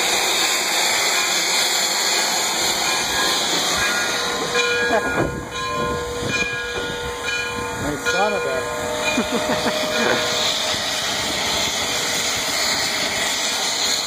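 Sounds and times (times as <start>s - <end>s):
steam locomotive hissing steam: 0.0s - 14.0s.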